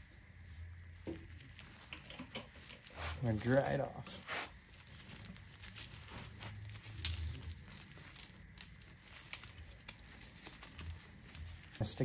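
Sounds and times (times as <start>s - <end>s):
cloth rag rustling: 0.5s - 12.0s
chain links clinking: 5.0s - 12.0s.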